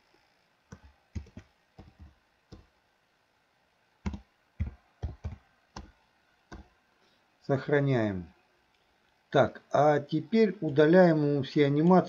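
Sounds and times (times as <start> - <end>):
keyboard keystrokes: 0.7 - 2.7, 4.1 - 5.9.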